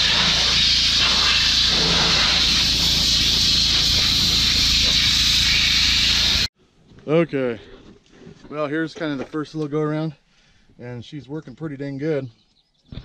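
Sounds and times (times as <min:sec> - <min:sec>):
low hum: 0:00.0 - 0:06.5
water jet spraying on metal: 0:00.0 - 0:06.5.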